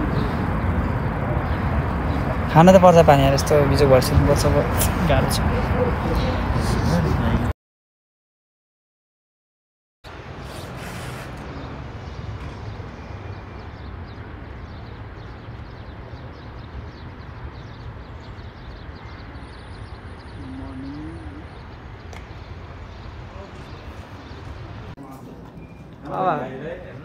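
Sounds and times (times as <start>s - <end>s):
small birds chirping: 10.4s - 25.0s.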